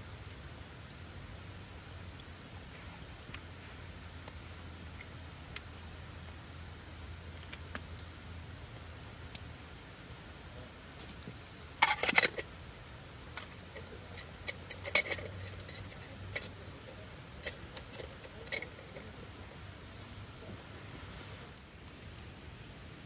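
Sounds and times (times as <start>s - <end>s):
small hard objects clinking: 11.0s - 12.5s, 13.2s - 19.2s.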